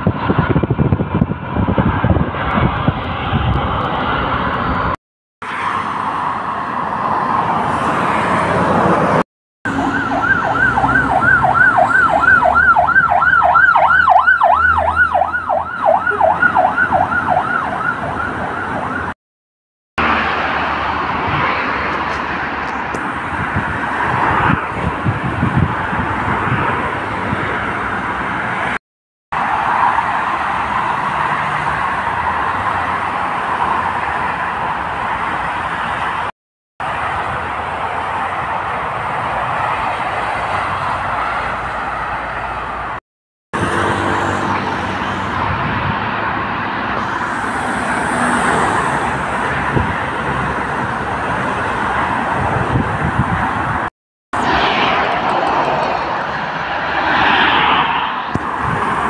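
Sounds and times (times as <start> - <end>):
vehicle and street noise: 0.0 - 19.2, 20.0 - 43.0, 43.6 - 59.0
police siren yelping: 9.7 - 19.2.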